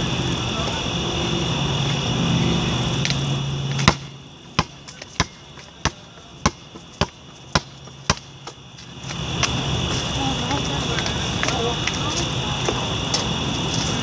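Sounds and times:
steady low hum: 0.0s - 14.0s
basketball bouncing: 3.8s - 8.6s.

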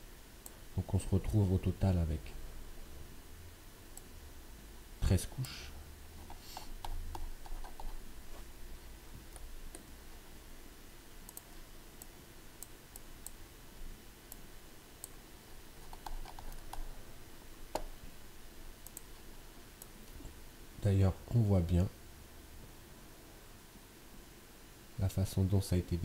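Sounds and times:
computer mouse clicks: 6.2s - 8.0s, 11.3s - 13.4s, 15.8s - 16.9s, 18.8s - 19.2s.

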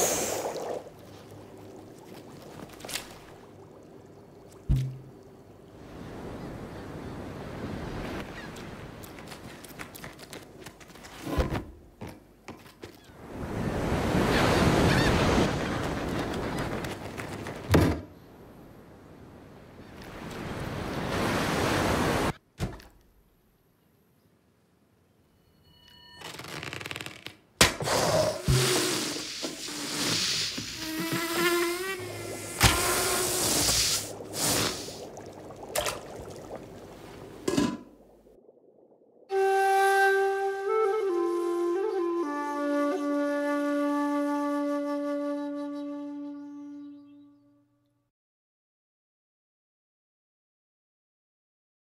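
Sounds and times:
sharp thump: 4.7s - 5.1s
ocean wave breaking: 20.1s - 22.4s.

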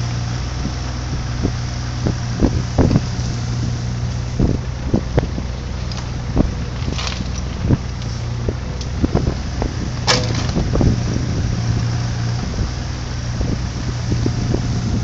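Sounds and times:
mini digger engine running: 0.0s - 15.0s
metal clanks and knocks: 9.9s - 11.1s.

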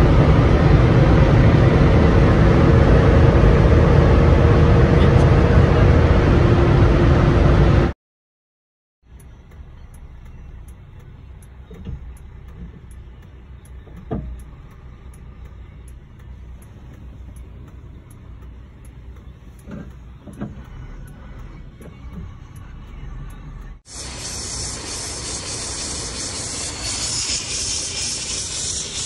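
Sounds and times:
car cabin rumble: 9.1s - 23.8s.

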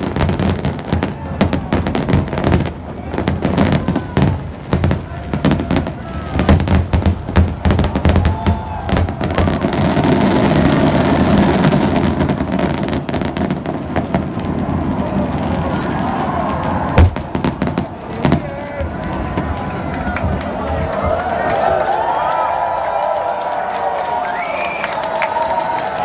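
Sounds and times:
fireworks crackling: 0.0s - 20.9s.

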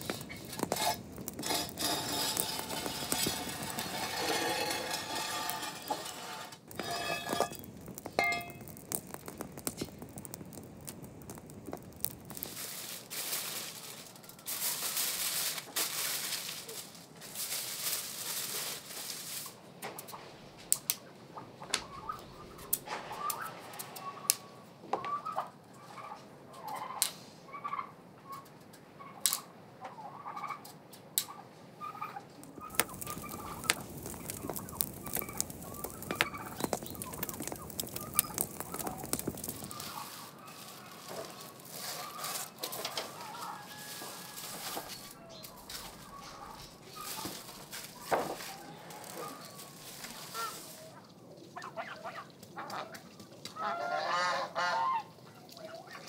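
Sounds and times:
poultry clucking: 21.4s - 28.4s, 29.8s - 33.7s, 39.7s - 47.4s, 50.3s - 56.0s.

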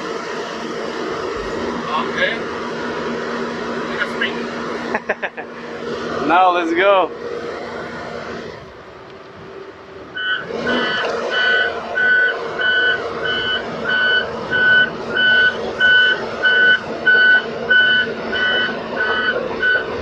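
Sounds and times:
diesel engine running: 0.0s - 20.0s
excavator warning alarm beeping: 10.2s - 20.0s.

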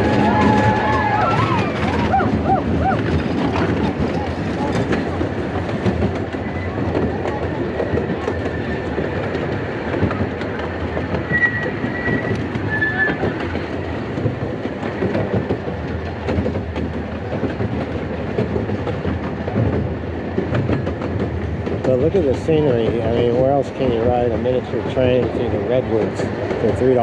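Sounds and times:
train wheels clattering on rails: 0.0s - 27.0s
wheel squeal: 11.2s - 13.5s.

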